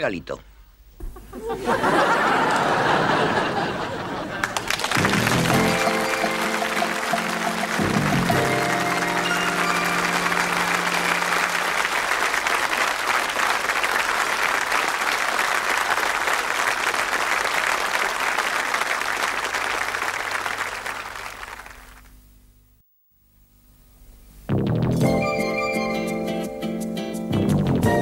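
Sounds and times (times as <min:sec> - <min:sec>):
studio audience applauding: 0:01.8 - 0:22.1.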